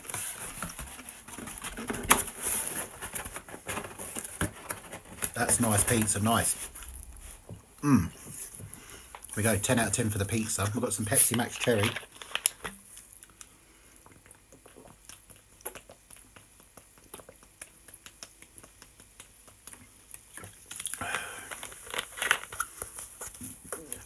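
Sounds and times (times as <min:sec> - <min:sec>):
plastic bottle crinkling: 0:00.0 - 0:07.5, 0:09.1 - 0:13.5, 0:20.4 - 0:24.0
person swallowing: 0:07.6 - 0:08.5.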